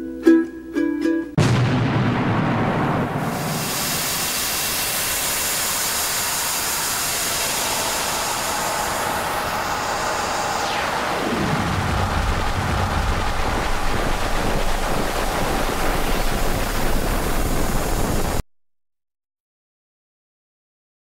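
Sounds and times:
loud rushing hiss: 2.7 - 18.4.

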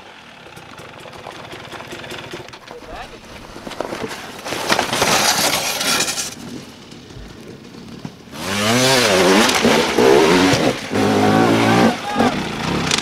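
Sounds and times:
dirt bike engines revving: 7.6 - 13.0.

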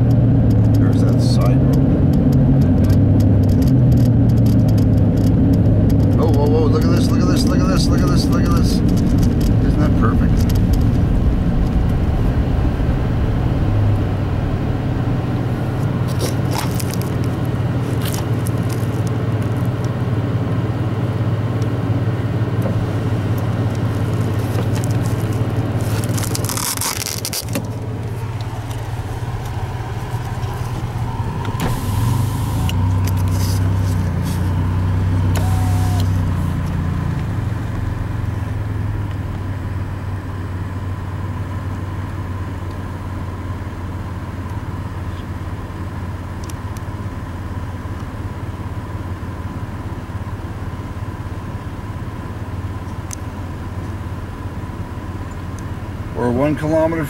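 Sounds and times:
car engine and road hum: 0.0 - 57.0
brief rush of noise: 28.8 - 34.5.

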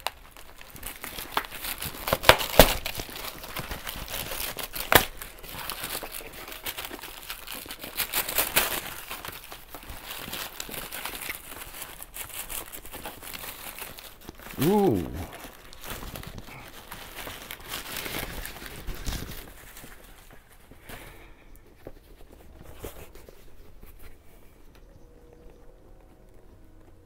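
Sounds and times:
packaging crinkling and rustling: 0.0 - 24.8.

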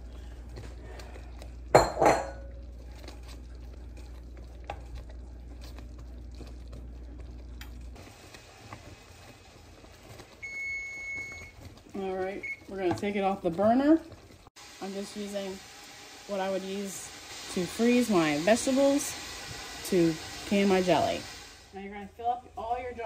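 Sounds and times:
low steady hum: 0.0 - 14.5
utensil clanking against pot: 1.7 - 2.6.

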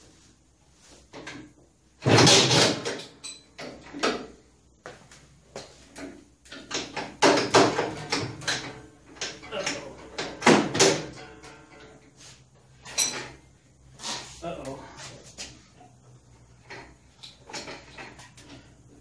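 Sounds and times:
sharp mechanical knocks and clunks: 2.0 - 4.4, 6.0 - 11.9.

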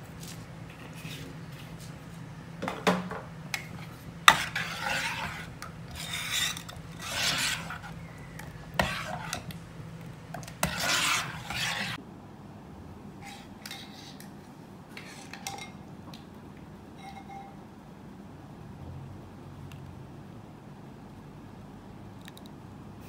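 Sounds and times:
ladle scraping a ceramic pot: 3.6 - 9.6, 10.4 - 12.0.

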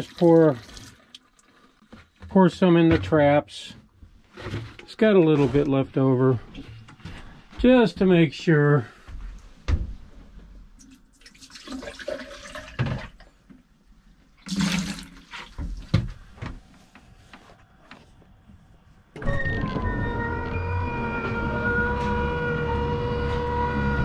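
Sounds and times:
liquid splashing and gurgling: 10.9 - 13.1.

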